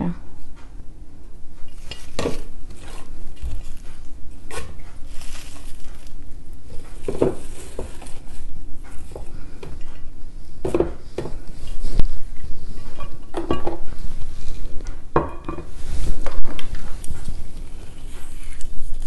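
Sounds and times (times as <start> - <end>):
rustling: 1.6 - 19.0.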